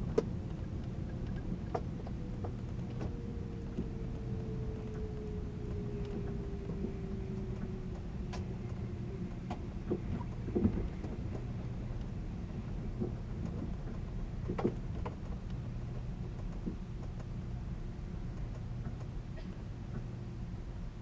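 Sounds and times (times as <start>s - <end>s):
train rumble and hum: 0.0s - 21.0s
sharp clicks and knocks: 12.9s - 17.5s.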